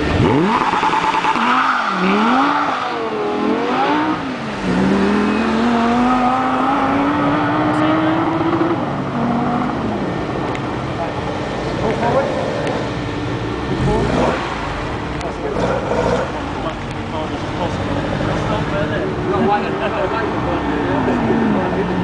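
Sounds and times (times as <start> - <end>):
car engine revving hard: 0.0 - 10.1, 13.7 - 16.7.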